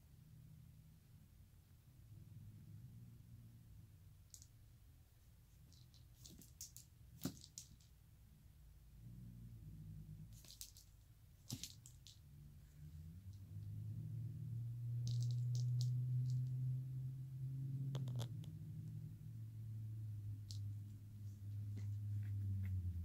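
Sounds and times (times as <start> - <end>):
faint low hum: 0.0 - 23.0
wand toy clicks and taps: 5.7 - 7.9.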